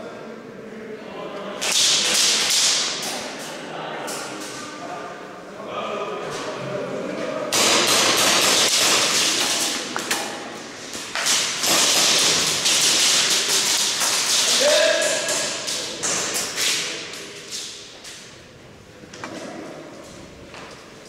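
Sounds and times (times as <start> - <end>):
airsoft guns firing bursts: 7.6 - 9.6, 11.2 - 14.5.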